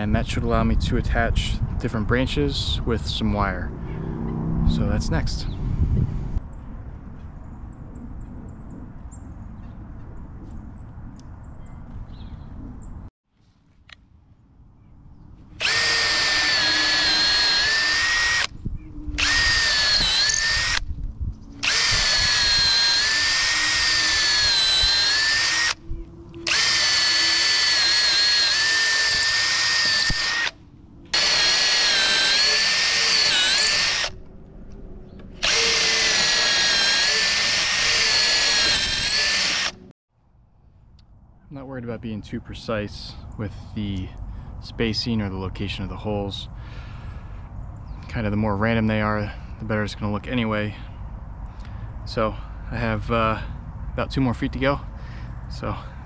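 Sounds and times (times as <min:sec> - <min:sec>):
cordless drill boring wood: 0:15.6 - 0:18.5, 0:19.2 - 0:20.8, 0:21.6 - 0:25.8, 0:26.4 - 0:34.2, 0:35.4 - 0:39.9.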